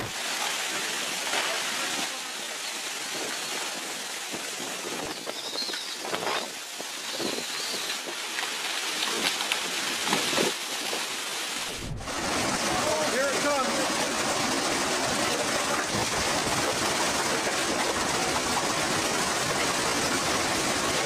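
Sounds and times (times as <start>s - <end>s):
heavy rain: 0.0s - 21.0s
strong wind: 11.6s - 13.0s.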